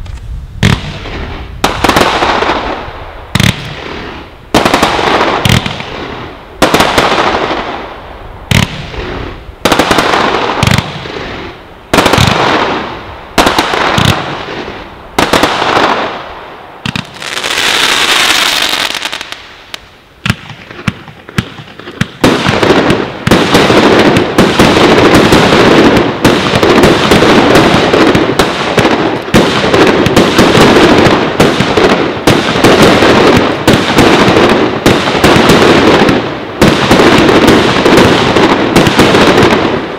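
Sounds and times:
firework bangs with crackle: 0.0s - 39.9s
rapid firework barrage: 0.2s - 39.9s
firework hiss: 8.5s - 19.9s.

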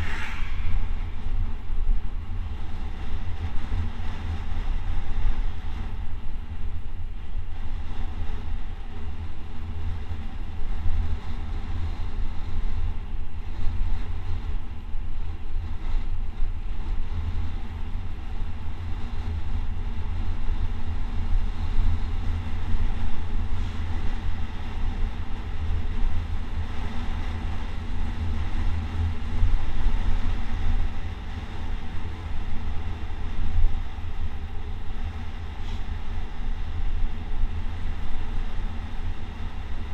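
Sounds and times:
road noise on rough asphalt: 0.0s - 39.9s
wind rushing over microphone: 0.0s - 39.9s.

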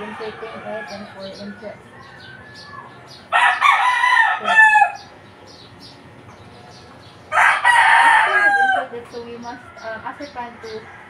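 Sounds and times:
rooster crowing: 0.0s - 5.1s, 7.3s - 11.0s.

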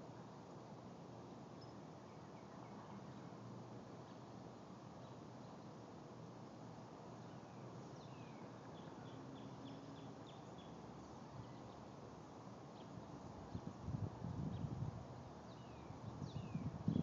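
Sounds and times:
faint background noise: 0.0s - 17.0s
bird chirping: 7.2s - 11.9s, 15.5s - 17.0s.

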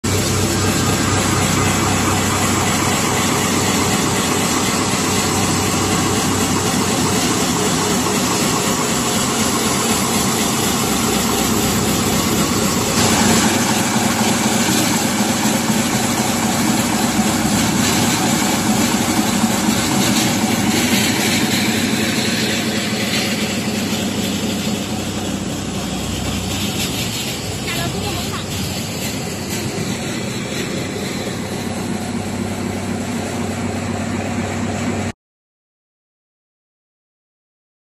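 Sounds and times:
textile shredding machine running: 0.0s - 35.1s.

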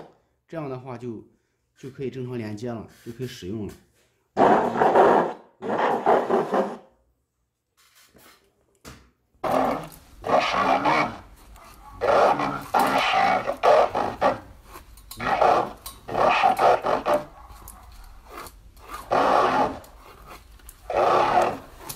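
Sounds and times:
robotic voice from speaker: 9.4s - 11.3s, 12.0s - 14.4s.

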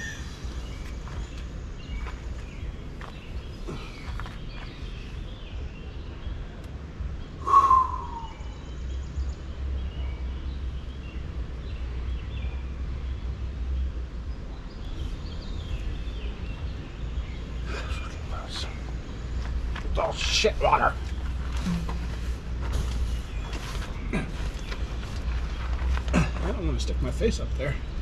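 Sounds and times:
faint birds chirping: 0.0s - 28.0s
bird call gliding down in pitch: 7.4s - 8.6s.

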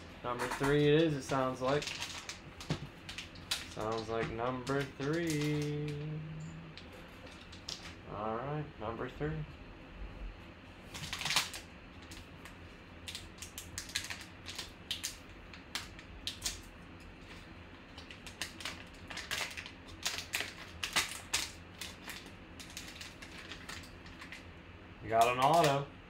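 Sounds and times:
wrapper tearing and crinkling: 0.6s - 6.0s, 10.9s - 12.2s, 13.1s - 16.6s, 17.9s - 24.4s.

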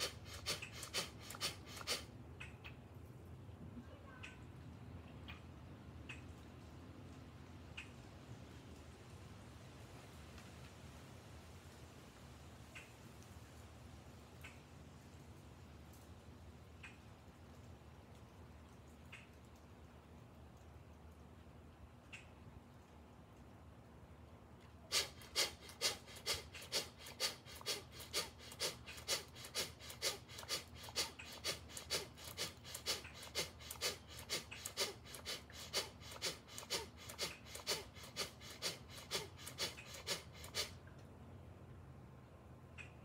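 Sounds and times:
man breathing forcefully: 0.0s - 2.1s, 24.9s - 40.8s.

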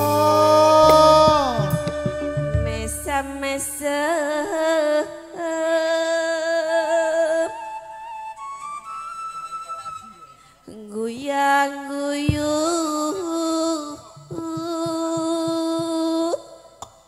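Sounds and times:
woman singing into a microphone: 0.0s - 7.9s, 10.7s - 16.8s.

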